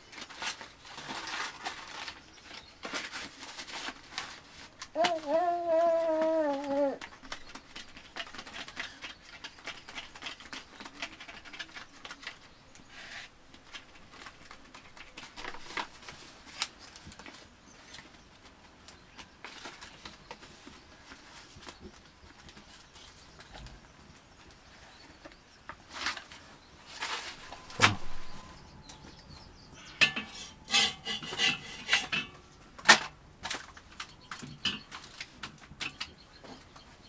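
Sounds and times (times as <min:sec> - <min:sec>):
leaves rustling by hand: 0:00.0 - 0:07.4, 0:25.8 - 0:32.5
small clicks and crackles: 0:00.0 - 0:30.2, 0:31.9 - 0:37.0.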